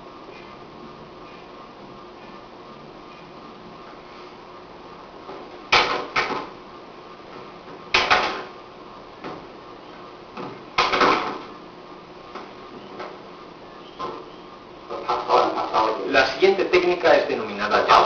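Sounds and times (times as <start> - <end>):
tape hiss: 0.0 - 18.0
hands slapping in sparring: 5.7 - 6.5, 7.9 - 8.5.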